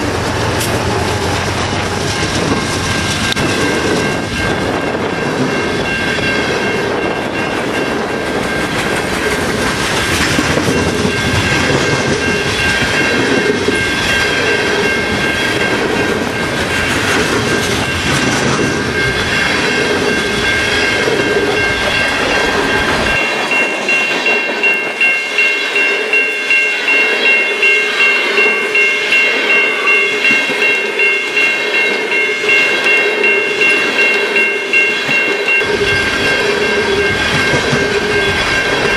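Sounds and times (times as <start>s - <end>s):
freight train wheels rolling: 0.0s - 38.9s
high-pitched ringing: 2.0s - 38.9s.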